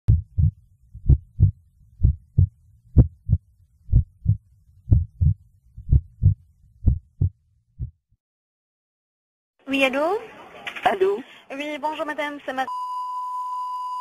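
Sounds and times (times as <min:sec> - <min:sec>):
heartbeat thumps: 0:00.1 - 0:08.1.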